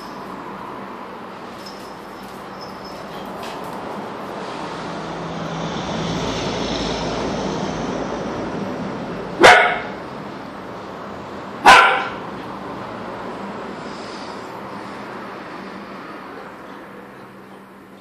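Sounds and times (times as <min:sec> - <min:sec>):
steady background noise: 0:00.0 - 0:18.0
puppy barking: 0:09.4 - 0:10.0, 0:11.6 - 0:12.3.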